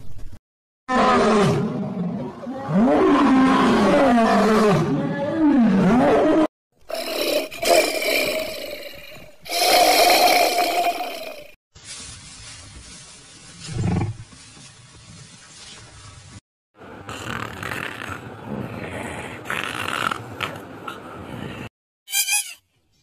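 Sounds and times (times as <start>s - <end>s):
large animal roaring: 0.9s - 11.4s.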